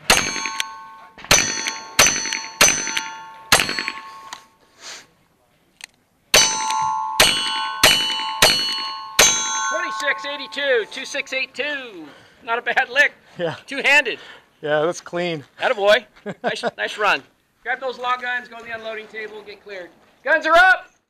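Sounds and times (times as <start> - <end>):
gunshots: 0.0 - 4.3, 6.4 - 9.6
steel target ringing: 0.0 - 4.6, 6.4 - 11.4.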